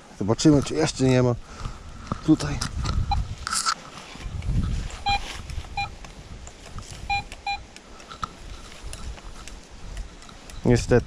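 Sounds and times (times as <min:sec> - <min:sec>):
faint rustling: 0:00.4 - 0:11.0
metal detector beeps: 0:05.0 - 0:06.0, 0:07.1 - 0:07.7.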